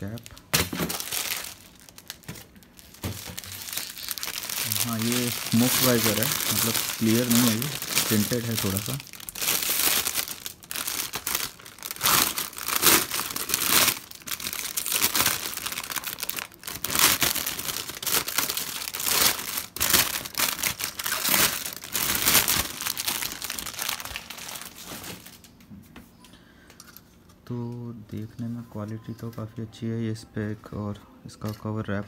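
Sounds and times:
plastic wrapping crinkling: 0.0 - 25.6.

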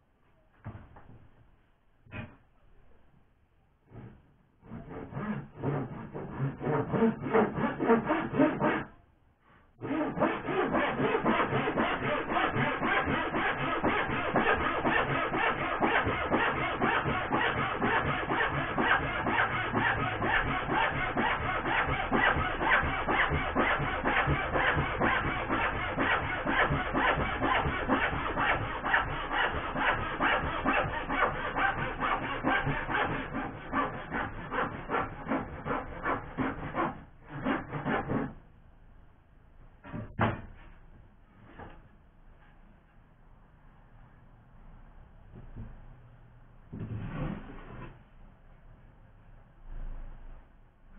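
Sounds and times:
hand saw cutting wood: 3.9 - 9.0, 9.8 - 38.4.

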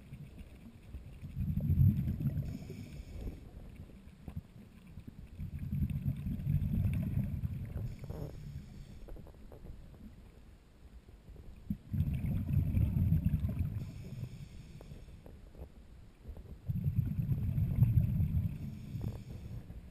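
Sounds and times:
diver inhaling through regulator: 2.4 - 3.6, 7.8 - 9.3, 13.8 - 15.3, 18.4 - 19.9
diver exhaling bubbles: 11.7 - 14.0.

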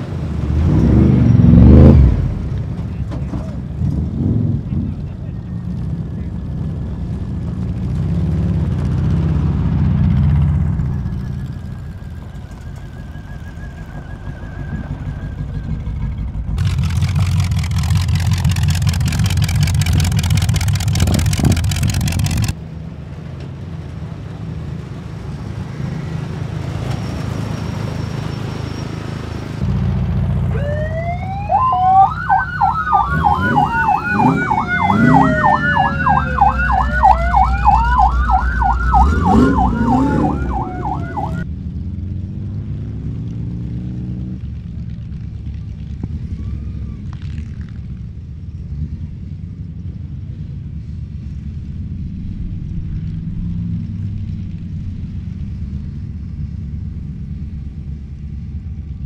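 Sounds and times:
car engines rumbling: 0.0 - 59.0
sirens wailing and yelping: 11.0 - 16.2, 30.4 - 41.5.

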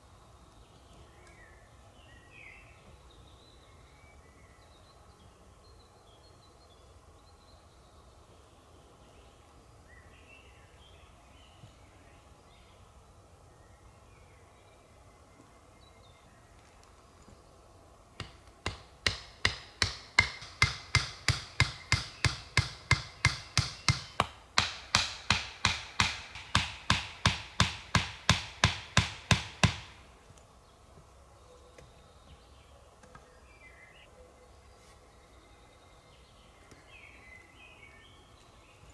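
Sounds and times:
fast sharp knocks: 18.2 - 30.0.

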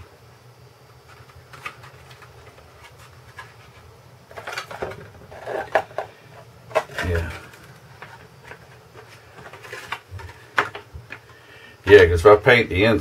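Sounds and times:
plastic sheets crinkling: 1.0 - 11.4.

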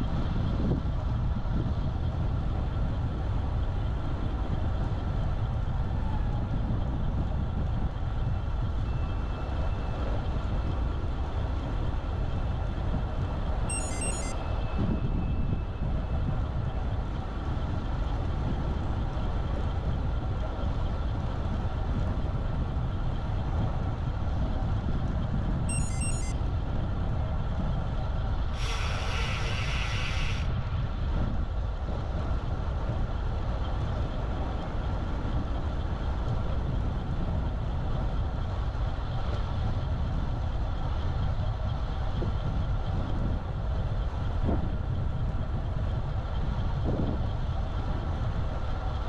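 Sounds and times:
road rumble: 0.0 - 49.0
wind noise: 0.0 - 49.0
rapid high-pitched beeps: 13.7 - 14.4, 25.7 - 26.4.

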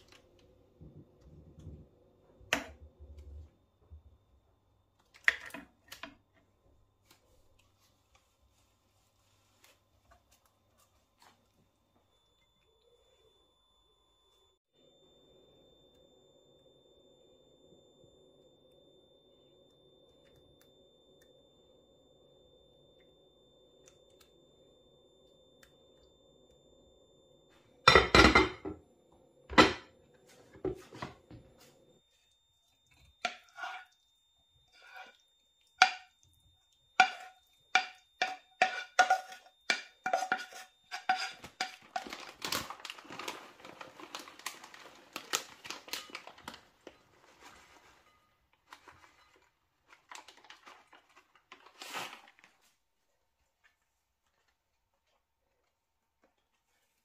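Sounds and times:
wooden spatula scraping pan: 33.2 - 34.0, 34.7 - 35.2, 37.0 - 42.1.

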